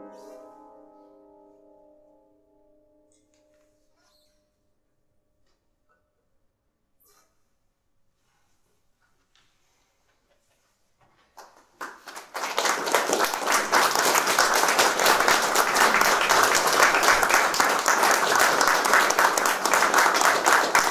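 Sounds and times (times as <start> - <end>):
audience applauding: 11.4 - 20.9.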